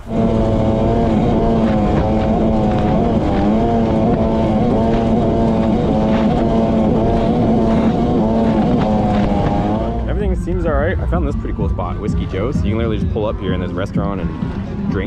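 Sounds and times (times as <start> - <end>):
personal watercraft engine running: 0.0 - 15.0.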